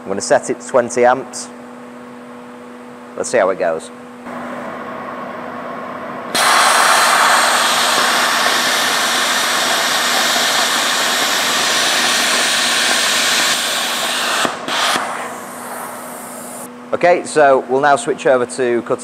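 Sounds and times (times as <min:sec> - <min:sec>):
plasma cutter arc hissing: 0:06.3 - 0:16.7.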